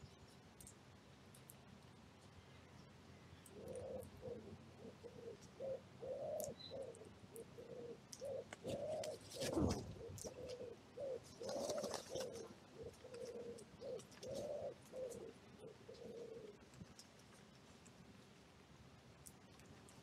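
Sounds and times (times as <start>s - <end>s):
wood pigeon cooing: 3.4s - 17.5s.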